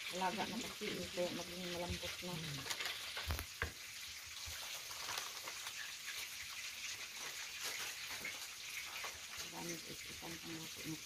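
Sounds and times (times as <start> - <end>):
oil sizzling in a frying pan: 0.0 - 11.0.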